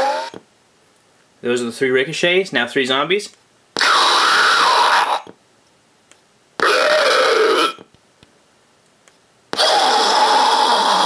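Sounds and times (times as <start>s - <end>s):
zombie sound effects: 3.8s - 5.2s, 6.6s - 7.8s, 9.6s - 11.0s.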